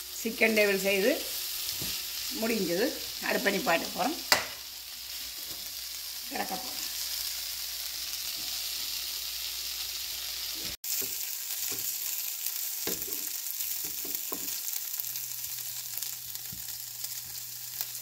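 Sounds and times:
chicken sizzling in a frying pan: 0:00.0 - 0:18.0
serving spoon knocking on pan: 0:04.3 - 0:04.6.

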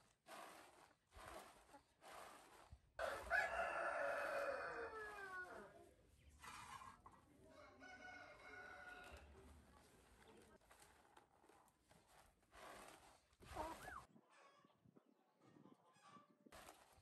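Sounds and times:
rooster crowing: 0:03.0 - 0:05.6, 0:07.5 - 0:09.2.

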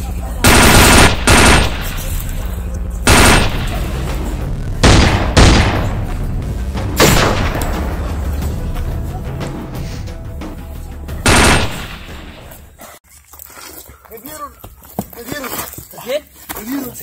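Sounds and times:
gunshots with echo: 0:00.4 - 0:02.3, 0:03.0 - 0:06.2, 0:06.8 - 0:08.2, 0:11.2 - 0:12.5.

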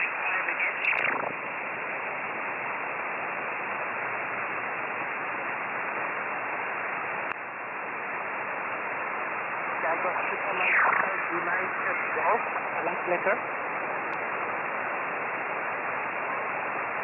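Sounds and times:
radio click: 0:00.0 - 0:01.4
radio band noise hiss: 0:00.0 - 0:17.0.

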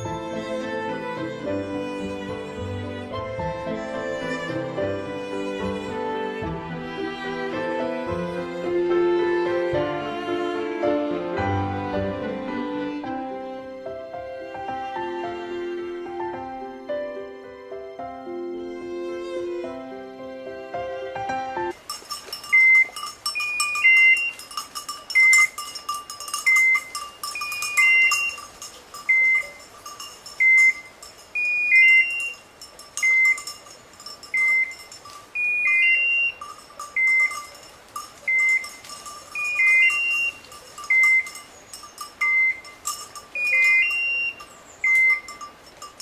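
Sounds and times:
electronic collar beeping: 0:22.1 - 0:46.0.

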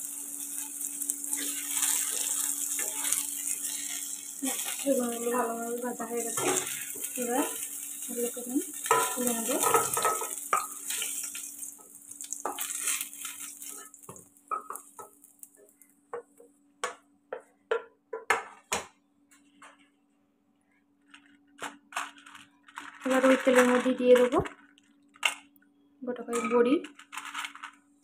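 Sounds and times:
vegetables sizzling in oil: 0:00.0 - 0:15.9.

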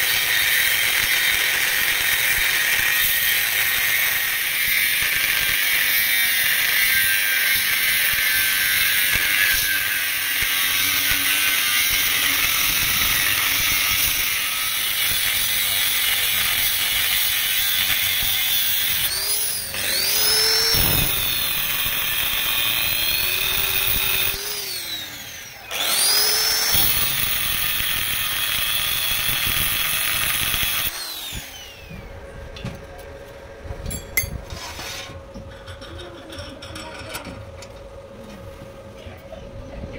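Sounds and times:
angle grinder cutting steel: 0:00.0 - 0:32.0.

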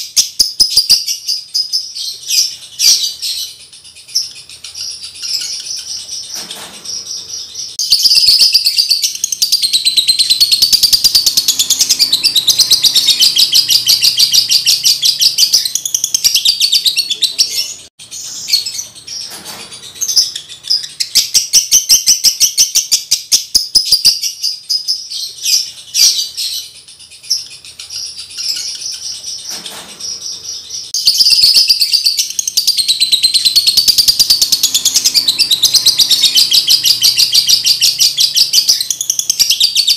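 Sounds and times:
lovebird chattering song: 0:00.0 - 0:39.9.

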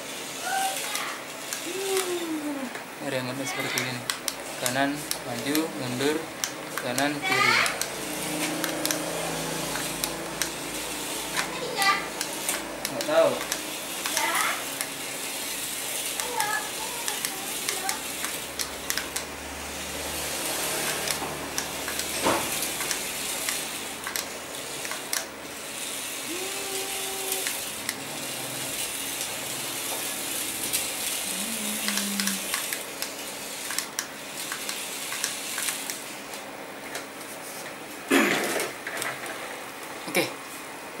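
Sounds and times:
small electric motor whirring: 0:00.0 - 0:36.4
scattered clicks: 0:00.8 - 0:02.8, 0:03.7 - 0:09.1, 0:09.7 - 0:11.5, 0:12.2 - 0:15.0, 0:16.0 - 0:19.3, 0:20.8 - 0:25.3, 0:27.2 - 0:28.0, 0:30.6 - 0:37.1.

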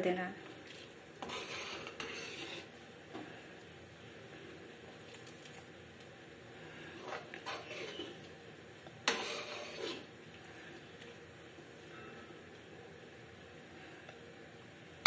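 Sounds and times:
spoon stirring and scraping pan: 0:00.4 - 0:03.3, 0:06.7 - 0:08.4, 0:09.0 - 0:10.1.

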